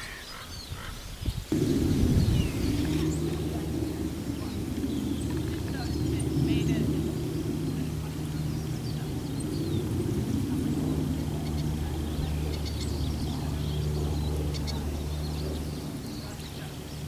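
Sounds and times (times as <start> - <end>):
bird chirps: 0.0 - 10.0
distant road traffic rumble: 1.5 - 17.0.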